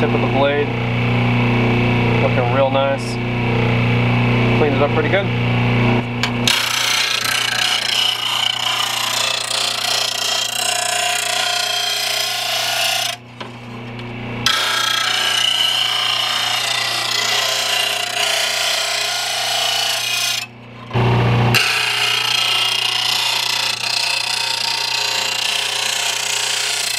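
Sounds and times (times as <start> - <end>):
grinder motor humming: 0.0 - 26.9
blade grinding on wheel: 6.2 - 26.9.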